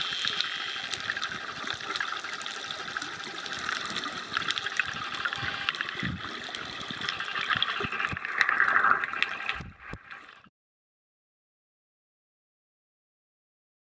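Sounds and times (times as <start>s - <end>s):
underwater rush and bubbling: 0.0s - 10.5s.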